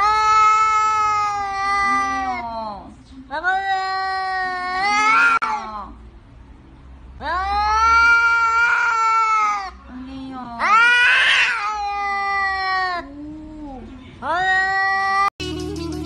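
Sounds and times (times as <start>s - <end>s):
cats yowling: 0.0s - 2.6s, 3.4s - 5.8s, 7.2s - 9.8s, 10.6s - 15.3s.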